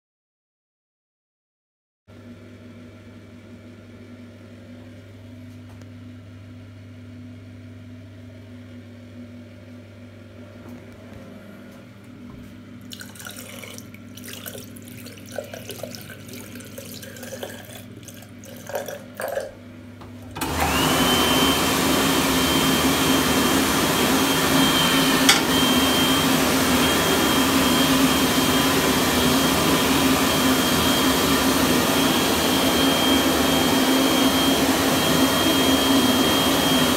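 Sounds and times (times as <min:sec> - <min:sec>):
tap running: 0:15.2 - 0:30.4
hand dryer blowing: 0:20.0 - 0:36.9.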